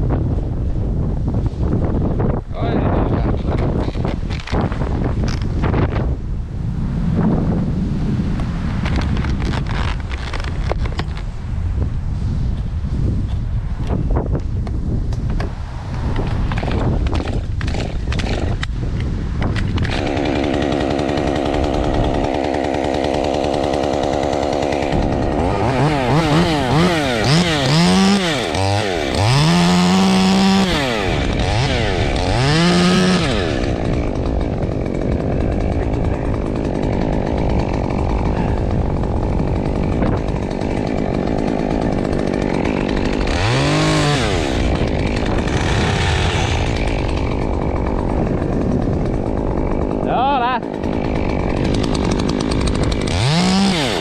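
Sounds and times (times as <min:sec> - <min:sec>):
wind noise: 0:00.0 - 0:54.0
chainsaw idling and revving: 0:08.9 - 0:11.0, 0:16.3 - 0:54.0.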